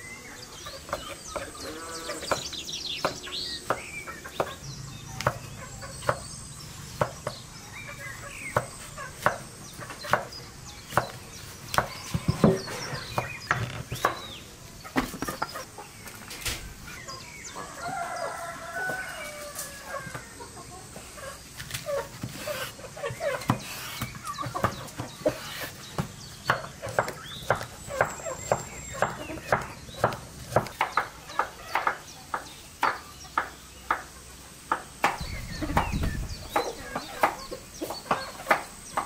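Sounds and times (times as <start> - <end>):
chickens clucking: 0.0 - 39.0
knife chopping on wooden board: 10.1 - 10.3, 23.4 - 34.0
rooster crowing: 17.5 - 20.5.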